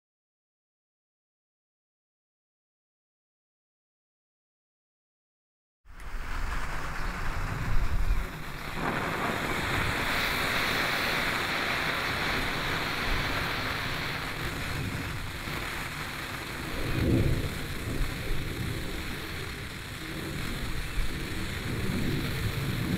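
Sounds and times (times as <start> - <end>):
firework fizzing hiss: 5.9 - 22.9.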